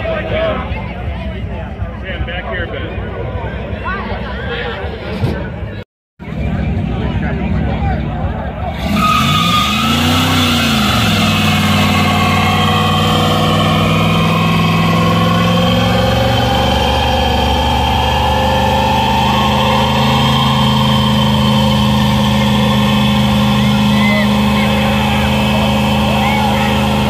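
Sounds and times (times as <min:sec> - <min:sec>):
car engine revving: 0:06.3 - 0:27.0
tyres spinning on pavement: 0:08.6 - 0:27.0.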